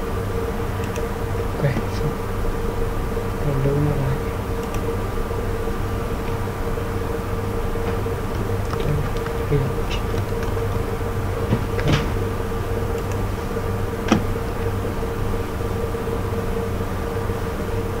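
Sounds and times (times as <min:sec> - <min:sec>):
steady background hum: 0:00.0 - 0:18.0
keyboard keys clicking: 0:00.8 - 0:01.1, 0:04.6 - 0:04.9, 0:07.9 - 0:12.3, 0:12.9 - 0:13.3.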